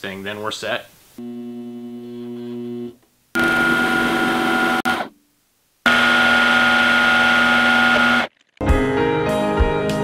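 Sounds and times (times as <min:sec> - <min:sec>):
lathe motor humming: 0:03.4 - 0:05.0, 0:05.9 - 0:08.3
lathe high whine: 0:03.4 - 0:05.1, 0:05.9 - 0:08.3.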